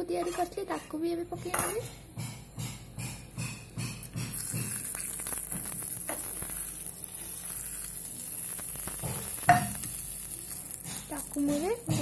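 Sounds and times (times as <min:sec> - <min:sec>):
hot oil sizzling: 0:03.9 - 0:12.0.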